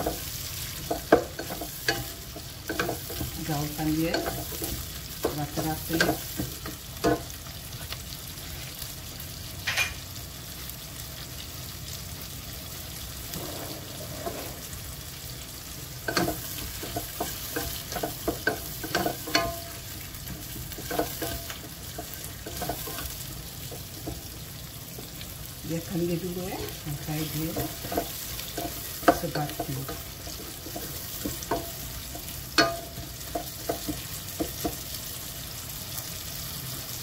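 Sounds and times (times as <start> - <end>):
food sizzling in oil: 0.0 - 37.0
spatula scraping pot: 13.2 - 14.9.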